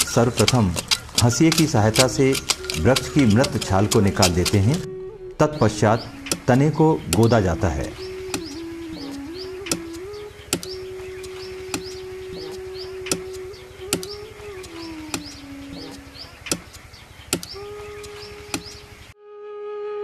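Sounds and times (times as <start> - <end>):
blade chopping tree bark: 0.0 - 4.8, 8.3 - 15.4
high chirps: 0.0 - 19.2
wavering steady tone: 1.2 - 16.4.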